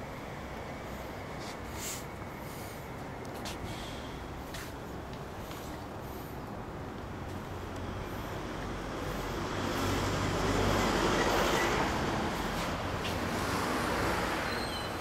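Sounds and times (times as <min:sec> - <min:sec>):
low engine hum: 0:00.0 - 0:15.0
motor vehicle passing: 0:07.2 - 0:15.0.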